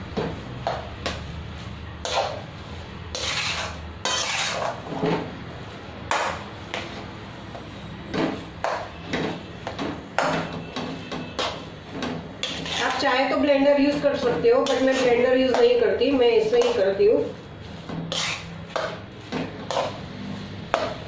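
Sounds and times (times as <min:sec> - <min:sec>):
spatula scraping metal bowl: 0:00.2 - 0:05.3, 0:10.2 - 0:21.0.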